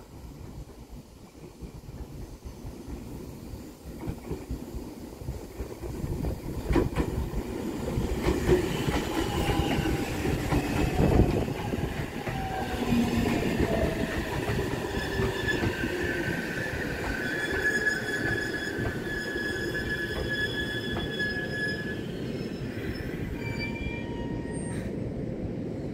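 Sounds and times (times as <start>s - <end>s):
train wheels rumbling: 0.0s - 23.4s
wheel squeal: 14.8s - 16.1s, 17.0s - 24.8s.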